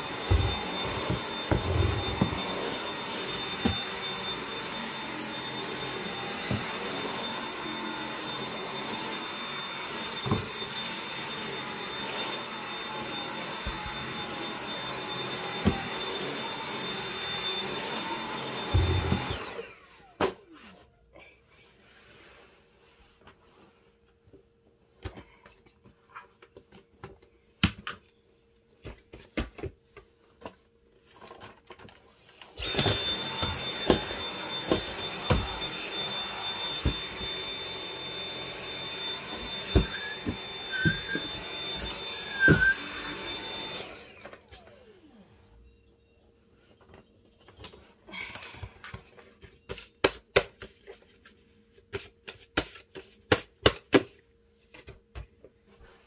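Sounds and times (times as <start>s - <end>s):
vacuum cleaner running: 0.0s - 20.8s, 32.2s - 46.2s.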